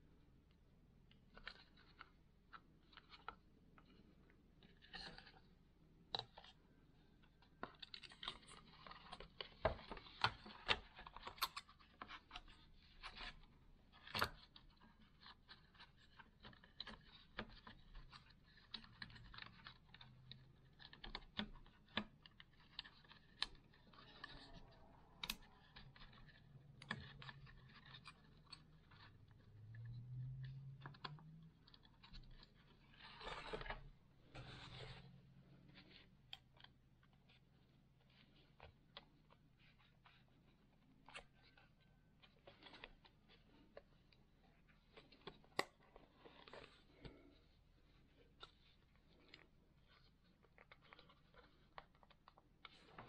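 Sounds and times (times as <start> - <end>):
plastic clicks taps and scrapes: 14.0 - 35.0.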